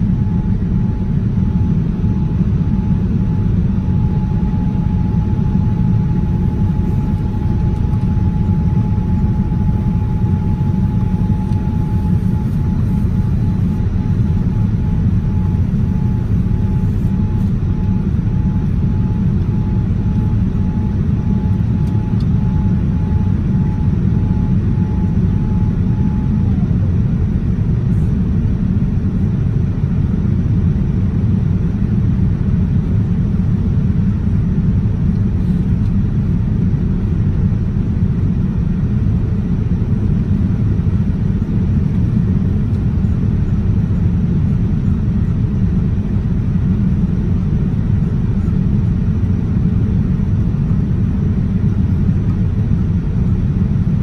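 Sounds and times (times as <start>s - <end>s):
faint high whine: 0.0s - 28.1s
airliner cabin engine rumble: 0.0s - 54.0s.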